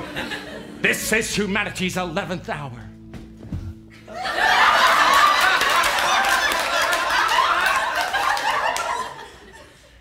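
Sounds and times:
audience laughing: 0.0s - 0.9s, 4.0s - 10.0s.

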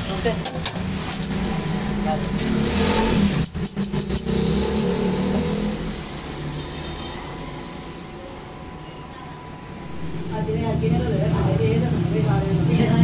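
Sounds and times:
workshop machinery drone: 0.0s - 13.0s.

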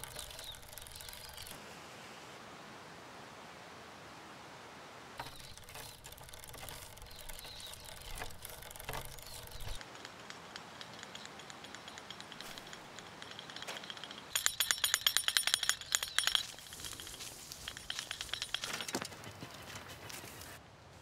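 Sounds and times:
bicycle chain and frame rattling: 0.0s - 1.6s, 5.2s - 20.1s
light ticking: 5.2s - 19.0s.

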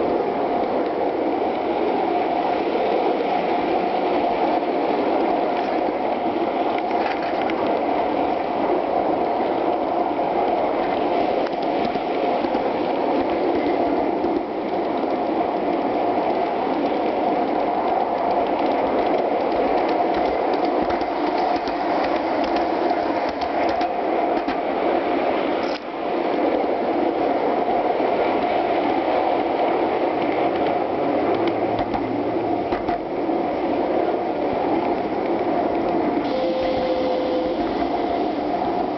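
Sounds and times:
small wheels rattling over rails: 6.6s - 24.7s.

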